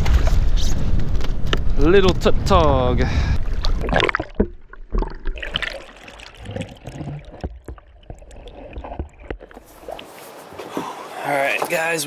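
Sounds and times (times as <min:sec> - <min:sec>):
water sloshing against hull: 0:03.4 - 0:11.0.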